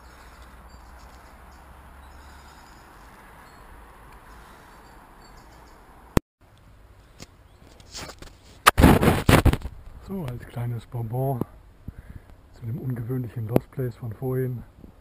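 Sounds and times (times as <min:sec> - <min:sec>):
faint bird chirps: 0:00.0 - 0:06.0.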